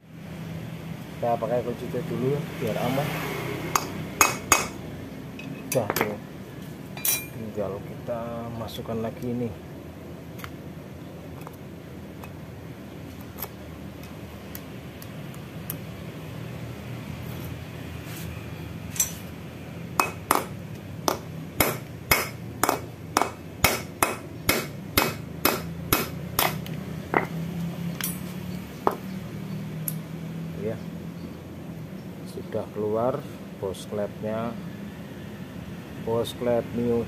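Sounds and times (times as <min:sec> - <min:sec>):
hammer striking metal bolt: 0:20.0 - 0:27.4.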